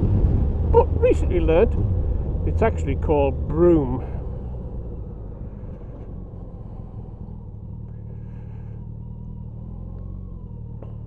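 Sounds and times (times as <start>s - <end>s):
wind noise: 0.0s - 2.4s
motorcycle engine running: 0.0s - 11.0s.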